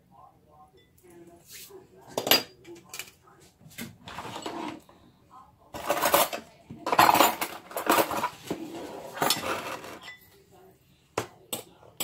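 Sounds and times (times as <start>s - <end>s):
utensil scraping ceramic bowl: 5.8s - 10.2s.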